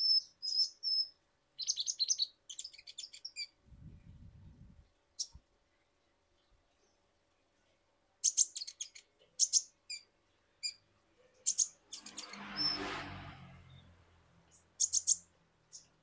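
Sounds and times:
sunbird high chirps: 0.0 - 3.6, 5.2 - 5.4, 8.2 - 10.8, 11.4 - 13.0, 14.5 - 16.0.

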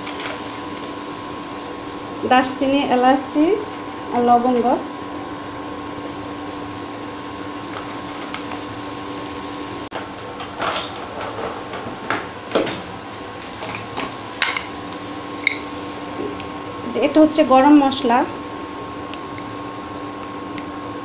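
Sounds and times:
induction cooktop humming: 0.0 - 21.0.

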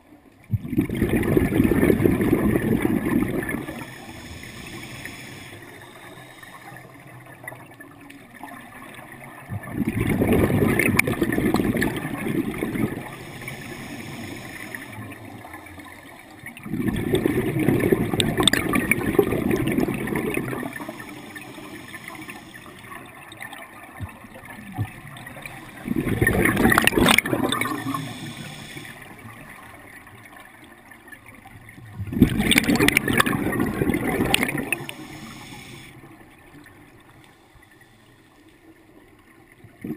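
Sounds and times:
exhaled air bubbling underwater: 0.0 - 39.9
regulator hiss: 3.7 - 6.9, 13.1 - 15.0, 27.7 - 29.2, 34.7 - 36.2.

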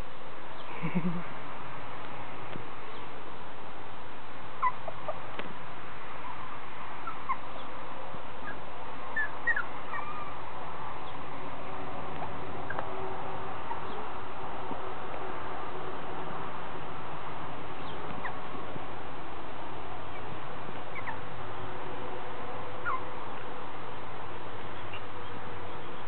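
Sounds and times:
puppies whimpering: 4.6 - 5.2, 8.5 - 10.4, 22.8 - 23.0.

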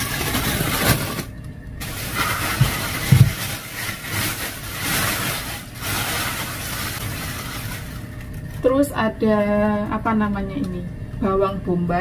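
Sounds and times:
plastic bags crinkling: 0.0 - 8.6.

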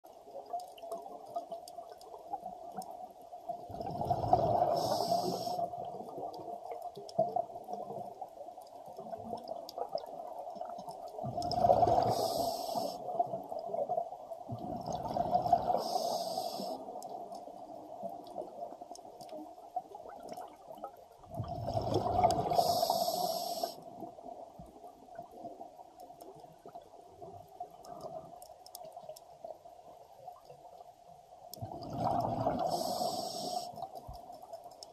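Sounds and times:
bubbling rumble with hiss: 3.6 - 7.7, 9.2 - 17.1, 21.2 - 24.5, 31.6 - 34.0
diver breathing through regulator: 4.3 - 5.7, 11.8 - 13.0, 15.6 - 16.8, 22.3 - 23.8, 32.4 - 33.8
faint steady hum: 21.3 - 34.9.

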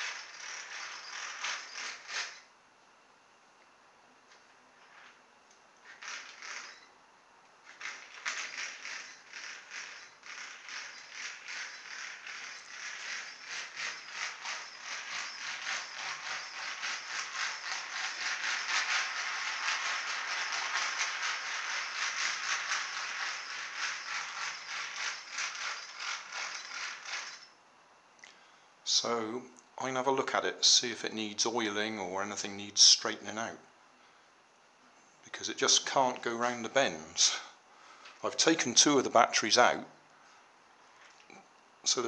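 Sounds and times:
toy train rattling on track: 0.0 - 2.5, 5.8 - 6.9, 7.6 - 27.6.

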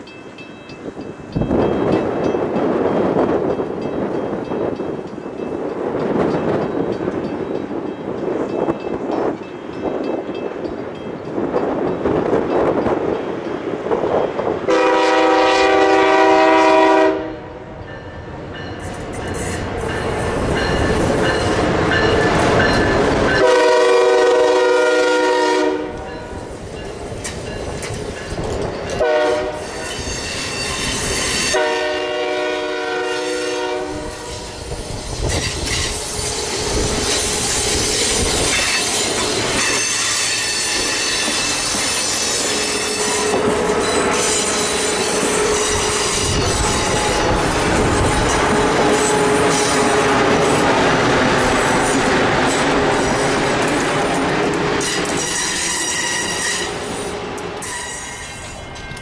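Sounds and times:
train wheels rumbling on rail: 0.0 - 59.0
train horn blasts: 14.7 - 17.8, 23.3 - 26.3, 29.0 - 34.7, 39.6 - 50.7.

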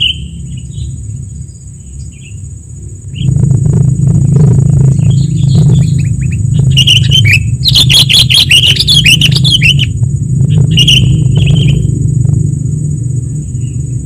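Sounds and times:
steady low hum: 0.0 - 14.0
thin high whine: 0.0 - 14.0
bulbuls chattering calls: 4.2 - 12.1.

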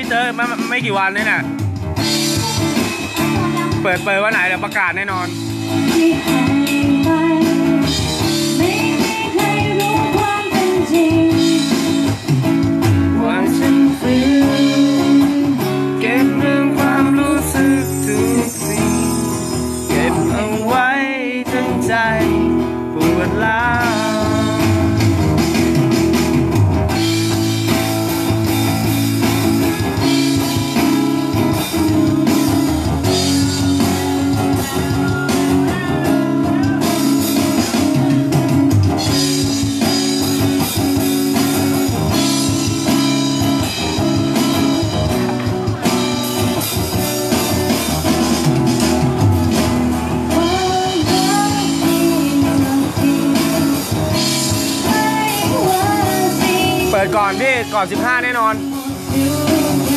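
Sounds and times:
live bluesy guitar music: 0.0 - 59.9
person singing: 5.7 - 12.2, 13.0 - 25.4, 50.3 - 57.8, 58.4 - 59.9.

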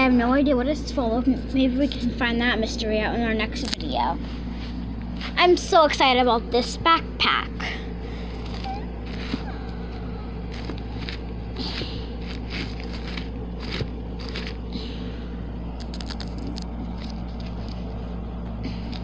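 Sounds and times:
steady low hum: 0.0 - 19.0
sequins rustling and clicking: 10.5 - 14.6, 15.8 - 17.9.

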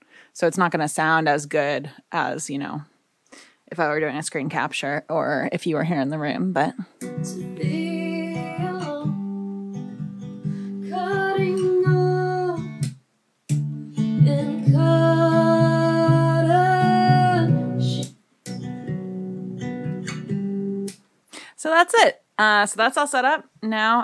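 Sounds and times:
acoustic guitar: 6.9 - 21.0
person singing: 7.1 - 9.2, 10.8 - 12.8, 14.0 - 18.1.

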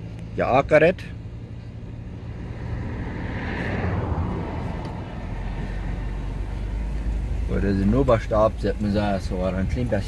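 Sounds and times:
vehicle engine humming: 0.0 - 10.0
rushing noise: 2.4 - 7.3.

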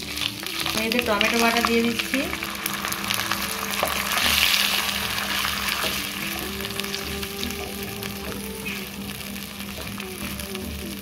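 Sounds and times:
paste sizzling in hot oil: 0.0 - 11.0.

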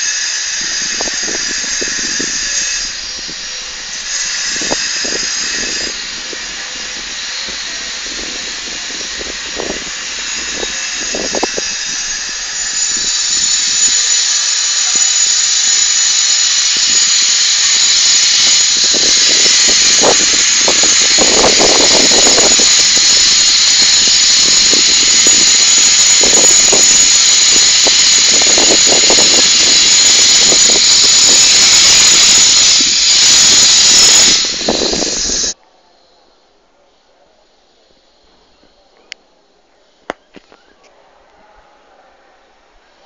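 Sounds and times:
high-pitched machine whine and hiss: 0.0 - 36.2.

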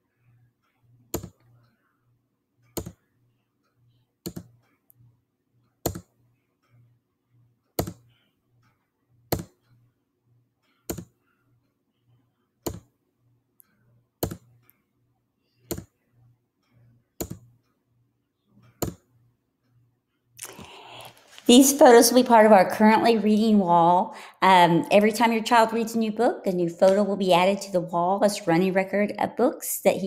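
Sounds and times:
computer mouse clicks: 1.1 - 1.6, 2.6 - 3.0, 4.2 - 4.8, 5.8 - 6.1, 7.8 - 8.2, 10.7 - 11.2, 12.6 - 12.9, 14.2 - 14.8, 15.6 - 16.0, 16.7 - 17.6, 18.6 - 19.1.

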